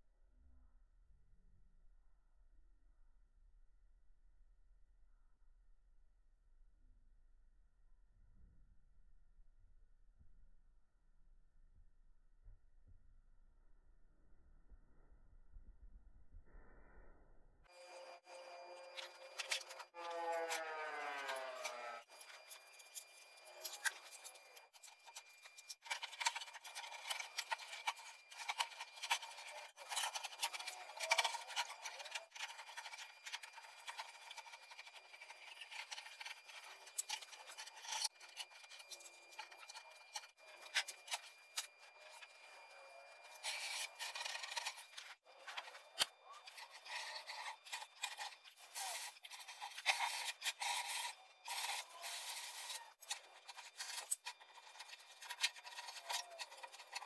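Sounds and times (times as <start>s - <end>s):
paper crinkling and rubbing: 18.6s - 57.0s
scissors snipping paper: 18.9s - 42.3s, 43.2s - 57.0s.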